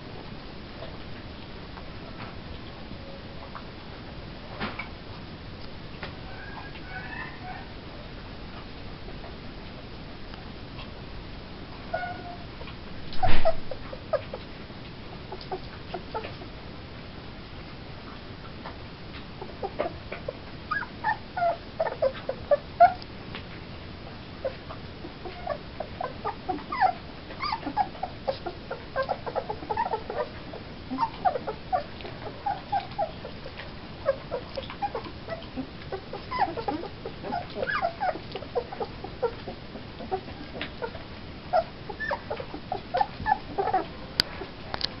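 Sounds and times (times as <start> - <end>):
puppies whimpering and squeaking: 6.2 - 7.7, 11.9 - 12.5, 13.1 - 14.5, 19.4 - 23.0, 24.4 - 44.6.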